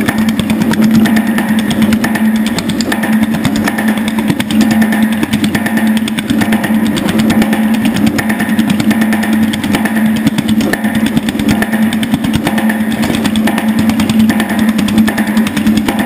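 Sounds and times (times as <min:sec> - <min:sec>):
power hammer pounding metal: 0:00.0 - 0:16.0
steady hum: 0:00.0 - 0:16.0.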